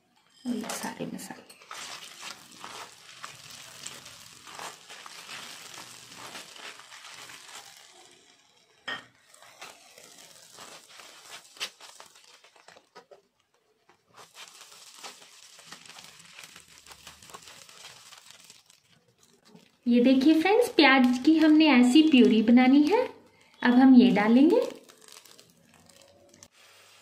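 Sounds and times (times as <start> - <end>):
spices sizzling in butter and oil: 1.5 - 12.9, 14.2 - 27.0.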